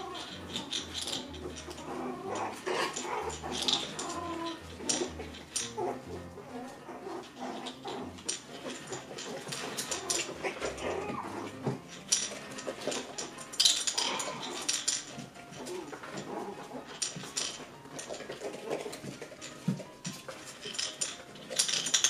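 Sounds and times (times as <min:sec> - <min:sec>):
puppy whines: 0:00.0 - 0:13.3
paws and toys clattering: 0:00.0 - 0:22.0.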